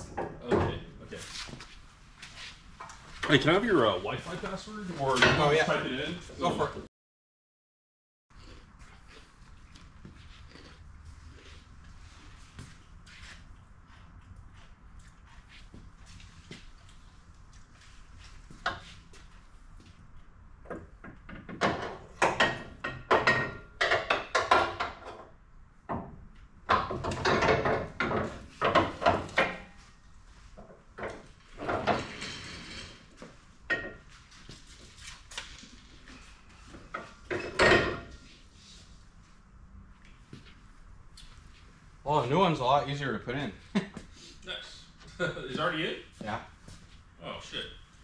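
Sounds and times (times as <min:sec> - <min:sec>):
metal clanking and knocking: 0:26.7 - 0:29.7, 0:31.0 - 0:33.0.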